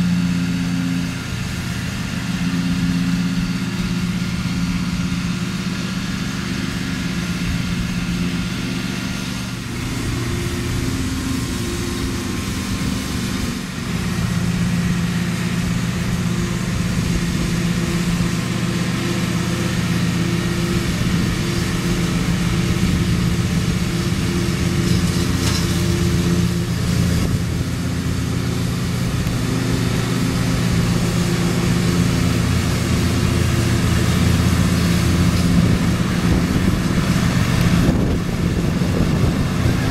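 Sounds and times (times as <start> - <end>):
riding lawn mower engine: 0.0 - 39.9.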